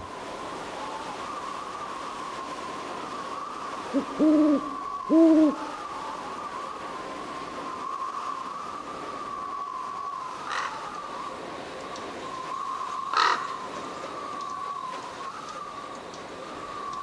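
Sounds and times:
owl hooting: 0:03.9 - 0:06.0.

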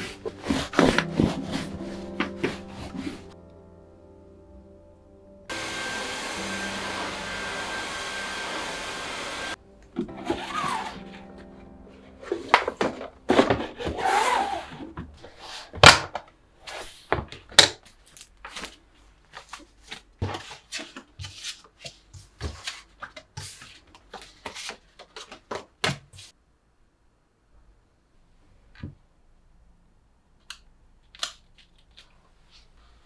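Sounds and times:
paper rustling and sliding: 0:00.0 - 0:03.4, 0:12.0 - 0:15.8, 0:18.4 - 0:26.3.

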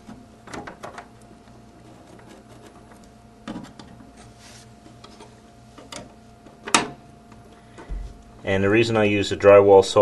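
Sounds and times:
pencil scratching drywall: 0:01.8 - 0:03.0.

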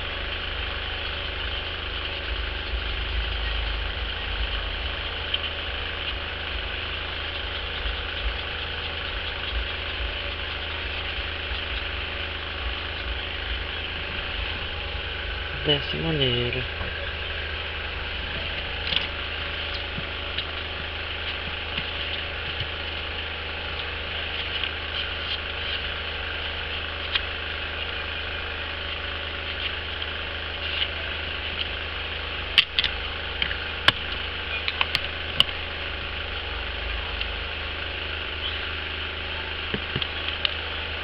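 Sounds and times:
low hum and hiss: 0:00.0 - 0:41.0
sharp small clicks: 0:32.6 - 0:35.6.

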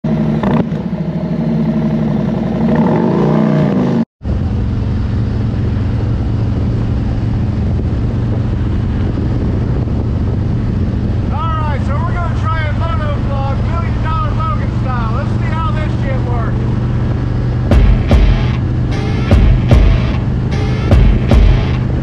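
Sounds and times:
motorcycle engine revving: 0:00.1 - 0:11.3, 0:16.6 - 0:22.0
wind rush on microphone: 0:04.2 - 0:14.7.

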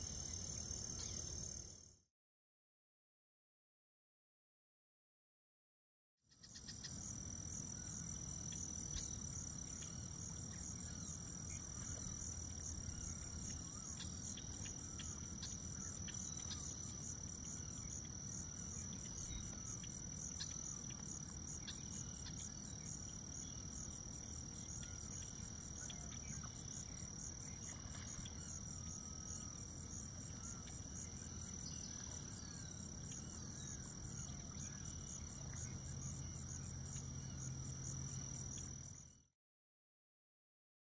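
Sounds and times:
insect chorus trilling: 0:00.0 - 0:01.8, 0:06.3 - 0:39.2
faint chirps: 0:07.7 - 0:39.2.

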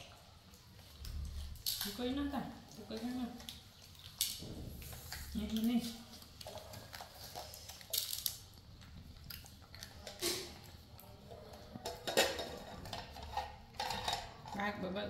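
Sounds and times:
tableware clinking on stone counter: 0:11.7 - 0:14.6.

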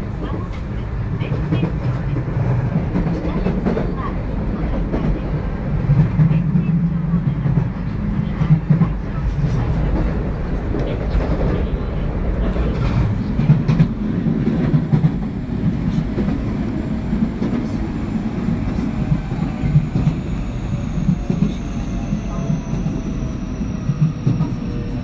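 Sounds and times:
train rolling rumble: 0:00.0 - 0:25.0.

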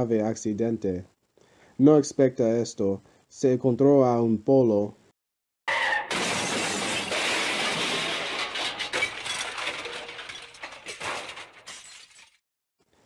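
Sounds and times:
car crash collision: 0:05.7 - 0:12.4
debris clinking and rattling: 0:06.1 - 0:12.4.

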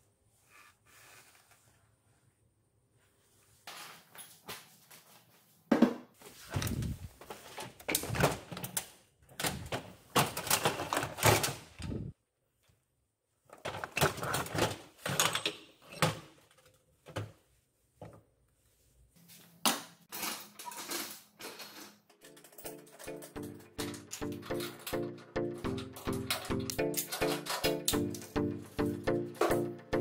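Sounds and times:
metal parts clattering on steel shelf: 0:09.4 - 0:11.7, 0:13.6 - 0:16.8, 0:20.1 - 0:28.3.

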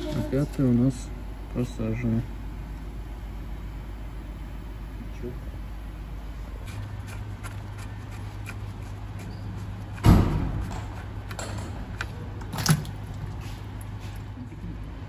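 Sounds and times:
steady low hum: 0:00.0 - 0:15.0
sharp knock: 0:10.0 - 0:10.6.

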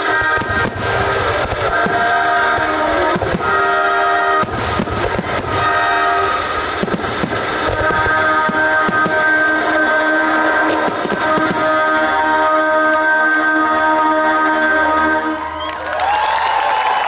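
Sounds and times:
orchestra playing held chords: 0:00.0 - 0:15.7
fireworks bursting: 0:00.0 - 0:17.0.

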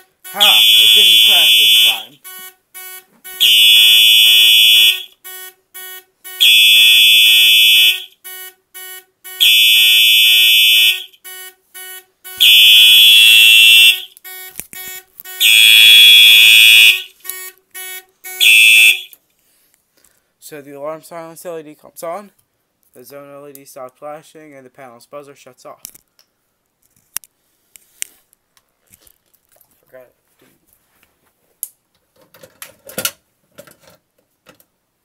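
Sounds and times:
alarm buzzer beeping faintly: 0:00.0 - 0:19.1
fire alarm horn blasts: 0:00.0 - 0:19.2.

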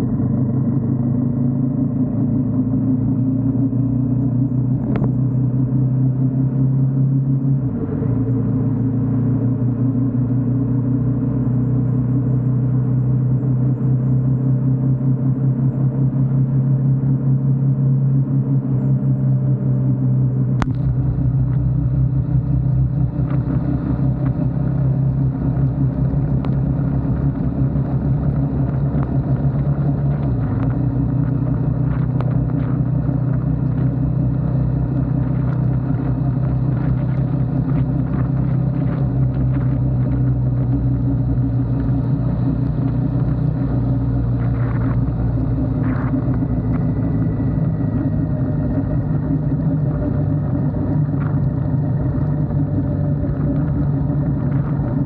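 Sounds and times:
motorcycle engine cruising: 0:00.0 - 0:55.0
wind noise: 0:20.6 - 0:55.0.

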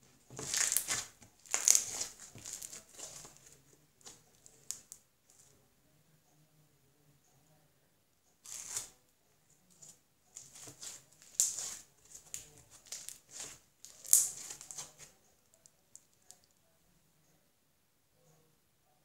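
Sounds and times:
slime with foam beads crackling: 0:00.3 - 0:05.0, 0:08.4 - 0:08.9, 0:10.4 - 0:15.1.

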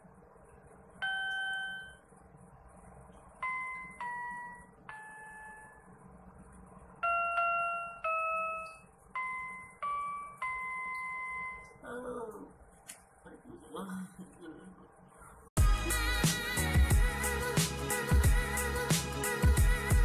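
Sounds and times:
electronic keyboard slow melody: 0:07.0 - 0:11.8, 0:15.6 - 0:20.0.

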